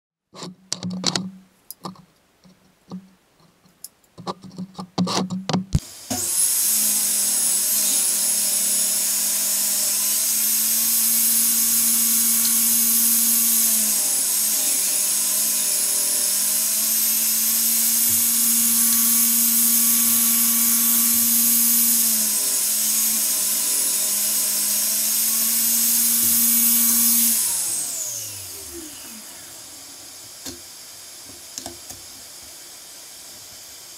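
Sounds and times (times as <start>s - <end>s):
table saw whining: 5.8s - 33.2s.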